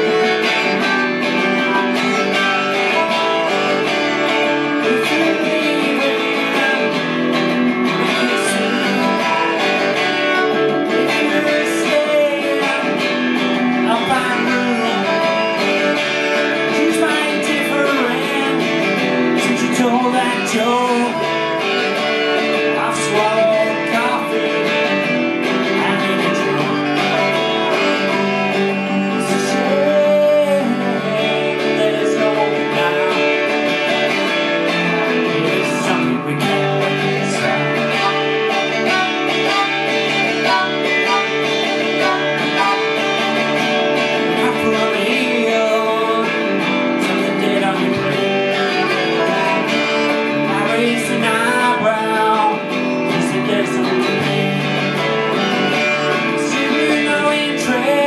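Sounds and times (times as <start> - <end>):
electric guitar strummed: 0.0 - 58.0
violin bowed: 37.9 - 43.9.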